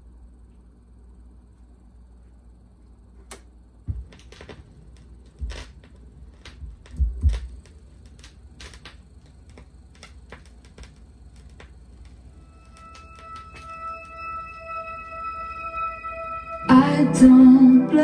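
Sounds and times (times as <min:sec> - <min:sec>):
vinyl record crackle and pops: 0:03.2 - 0:18.0
low thumps on turntable: 0:06.6 - 0:07.6.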